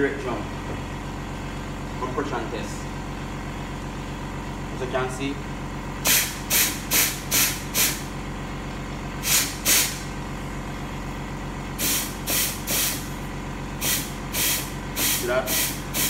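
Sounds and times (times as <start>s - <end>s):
compressed air blasts: 6.0s - 8.1s, 9.2s - 10.1s, 11.8s - 13.2s, 13.8s - 16.0s.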